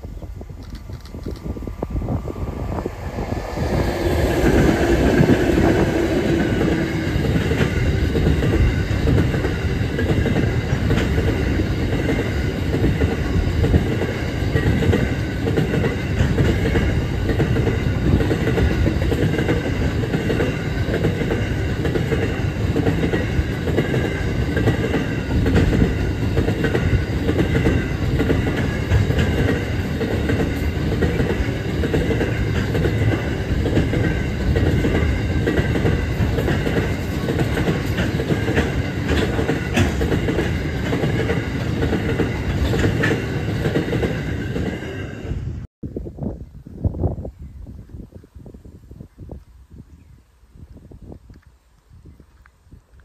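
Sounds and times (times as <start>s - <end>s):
diesel locomotive engine: 0.0s - 45.7s
train wheels on rails clattering: 3.1s - 45.3s.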